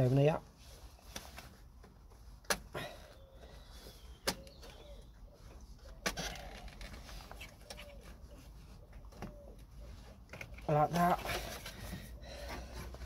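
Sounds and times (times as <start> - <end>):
pigeon cooing: 3.1 - 10.2.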